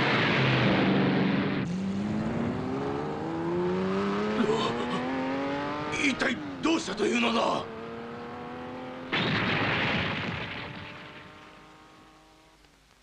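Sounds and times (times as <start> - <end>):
cartoon explosion rumble: 9.1 - 11.3.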